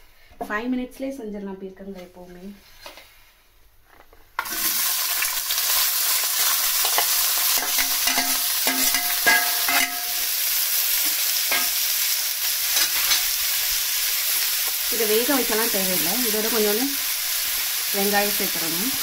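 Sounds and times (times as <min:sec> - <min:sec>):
vegetables sizzling in hot oil: 0:04.4 - 0:19.0
steel ladle clinking and scraping: 0:06.9 - 0:10.2.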